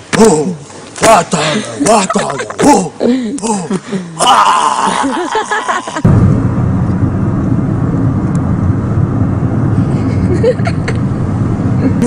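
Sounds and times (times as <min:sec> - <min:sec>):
man yelling: 0:03.6 - 0:05.2
car cabin road rumble: 0:06.0 - 0:12.0.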